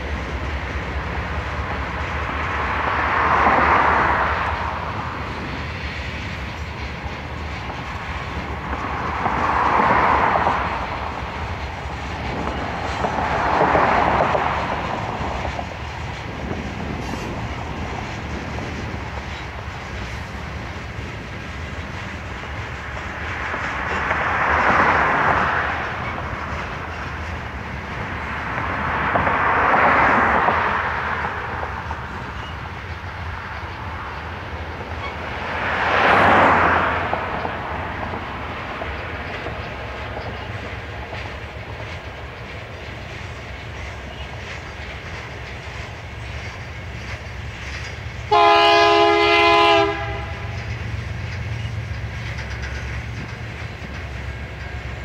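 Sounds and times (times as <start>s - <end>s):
freight cars rolling on rails: 0.0s - 55.0s
locomotive air horn: 48.3s - 50.6s.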